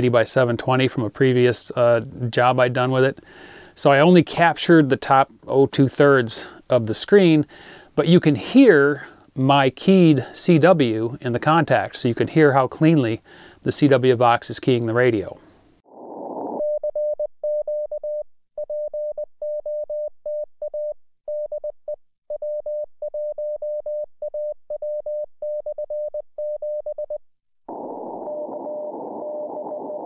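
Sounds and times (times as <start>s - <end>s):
faint morse signal: 16.3s - 21.7s, 22.4s - 30.0s.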